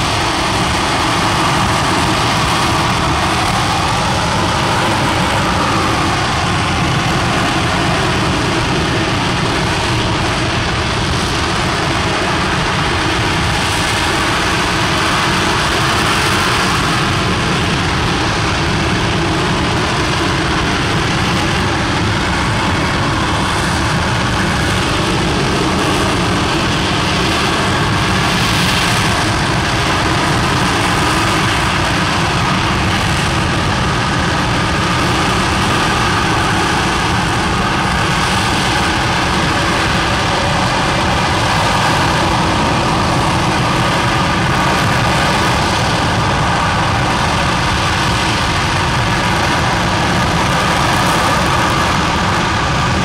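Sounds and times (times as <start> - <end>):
rocket engine roaring: 0.0 - 53.0.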